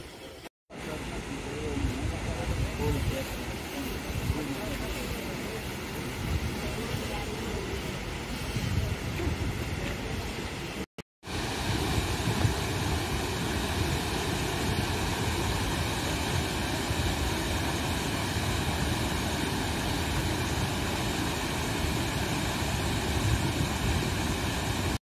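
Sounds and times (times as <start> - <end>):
waterfall rushing: 9.6 - 25.0.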